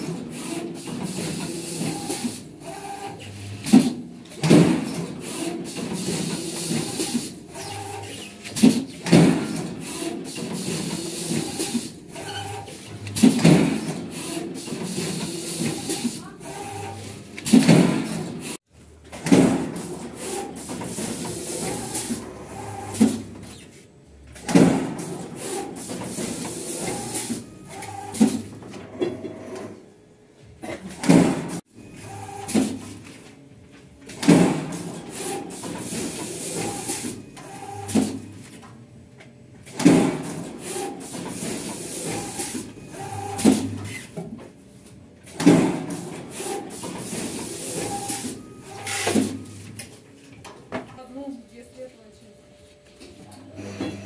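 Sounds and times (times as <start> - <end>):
loud mechanical knock: 19.2 - 19.8, 39.8 - 40.4.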